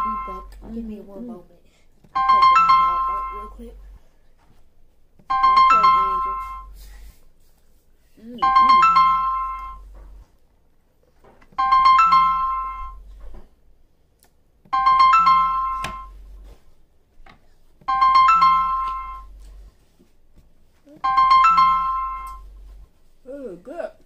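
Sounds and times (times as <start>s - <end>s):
electronic piano jingle: 0.0s - 0.6s, 2.2s - 3.8s, 5.3s - 6.8s, 8.4s - 9.9s, 11.6s - 13.0s, 14.7s - 16.2s, 17.9s - 19.3s, 21.0s - 22.5s.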